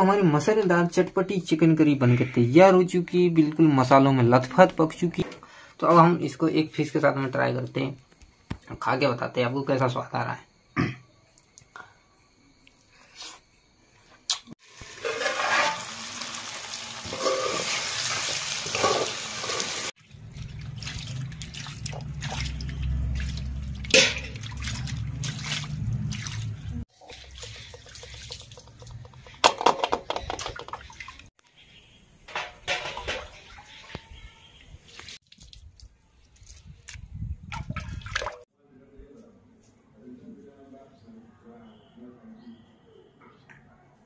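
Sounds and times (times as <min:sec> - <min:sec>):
water running and splashing: 0:14.6 - 0:31.3.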